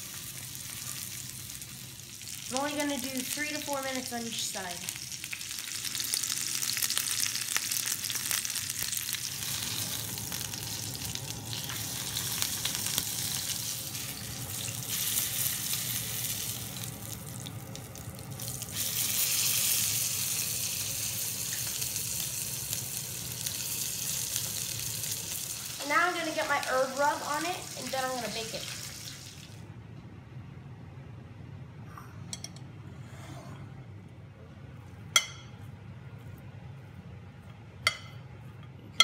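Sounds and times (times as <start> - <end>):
meat sizzling in a skillet: 0.0 - 3.6, 4.9 - 29.6.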